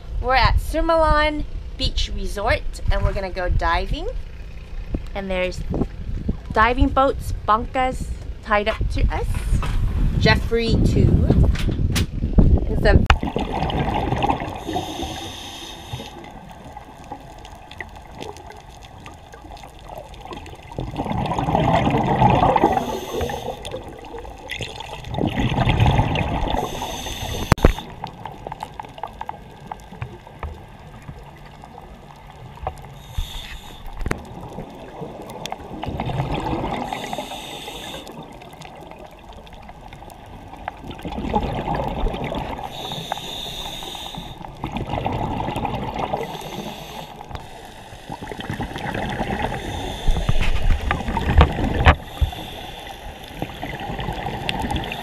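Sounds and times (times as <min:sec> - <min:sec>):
water lapping against hull: 0:00.0 - 0:55.0.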